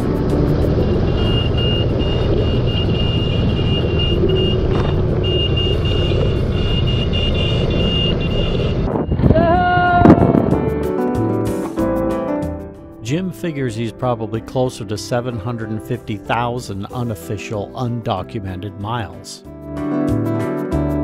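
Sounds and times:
motorcycle engine revving: 0:00.0 - 0:09.2
motorcycle engine rumble: 0:00.0 - 0:10.7
wind noise: 0:00.0 - 0:10.8
high beeping tone: 0:00.8 - 0:09.4.

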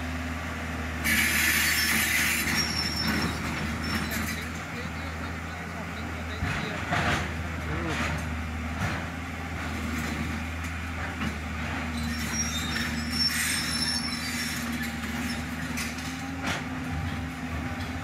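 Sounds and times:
excavator diesel engine running: 0:00.0 - 0:18.0
high-pitched metallic squeals: 0:01.0 - 0:04.5, 0:11.9 - 0:16.3.

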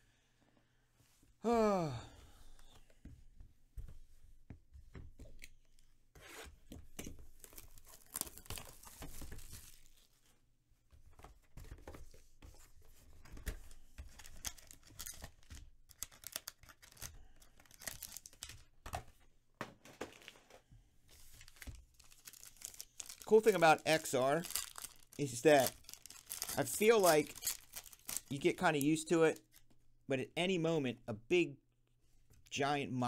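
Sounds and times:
foil packs crinkling: 0:07.4 - 0:10.1, 0:14.3 - 0:18.7, 0:21.2 - 0:29.1.

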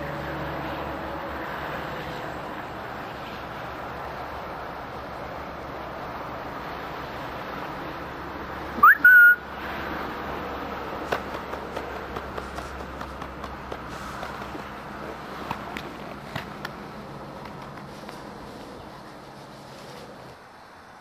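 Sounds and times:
steady outdoor hiss: 0:00.0 - 0:21.0
person whistling: 0:08.8 - 0:09.4.

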